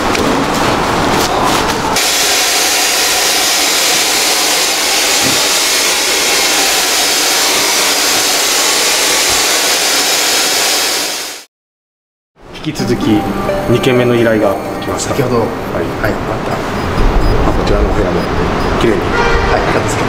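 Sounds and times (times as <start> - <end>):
electric fogger blowing hiss: 2.0 - 11.5.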